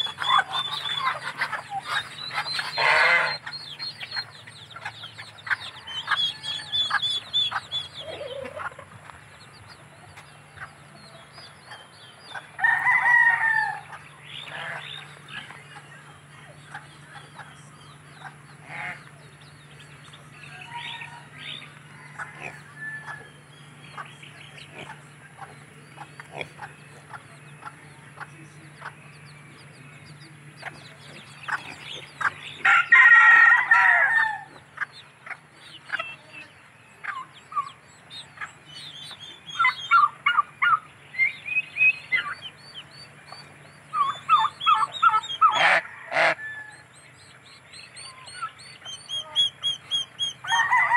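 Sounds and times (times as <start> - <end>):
faint low hum: 0.0 - 45.8
chickens clucking: 0.0 - 50.9
rooster crowing: 5.7 - 7.2, 12.6 - 13.9, 20.4 - 23.4, 32.6 - 34.6, 45.2 - 46.9, 50.4 - 50.9.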